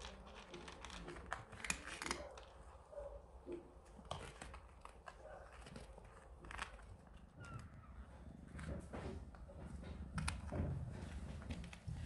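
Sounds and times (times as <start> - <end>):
cat crunching dry kibble: 0.0 - 8.9.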